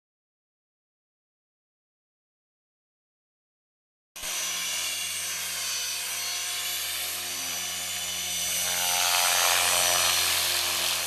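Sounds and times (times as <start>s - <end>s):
electric motor and gears whine: 4.2s - 11.0s
spinning rotor hum: 4.4s - 11.0s.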